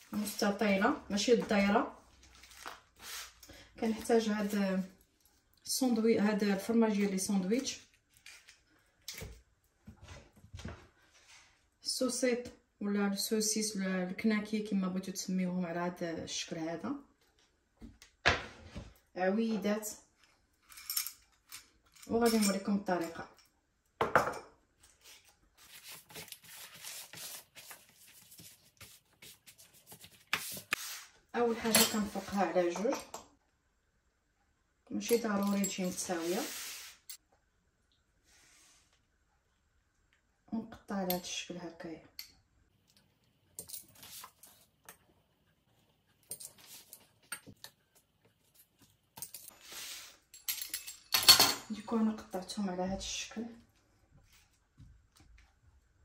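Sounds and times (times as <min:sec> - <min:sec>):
baking paper crinkling: 0:02.2 - 0:03.4, 0:24.9 - 0:31.1
short scraping hiss: 0:36.2 - 0:37.2.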